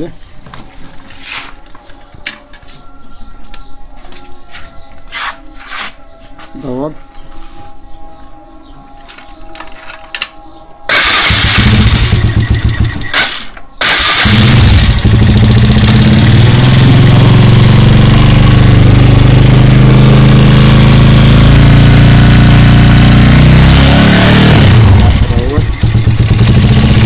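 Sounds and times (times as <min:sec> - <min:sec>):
motorcycle engine starting and running: 0:10.9 - 0:27.0.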